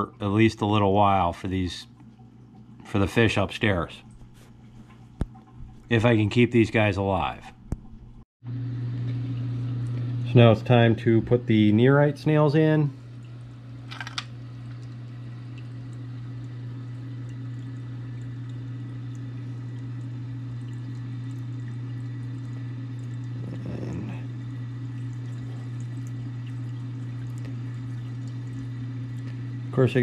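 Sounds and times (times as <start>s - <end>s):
water moving in tank: 0.0s - 8.2s, 12.3s - 30.0s
aquarium equipment humming: 0.0s - 30.0s
water swishing: 14.9s - 29.7s.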